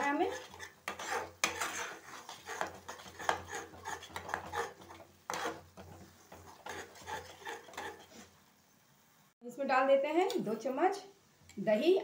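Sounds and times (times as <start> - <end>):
spatula scraping a pan: 0.0 - 8.4.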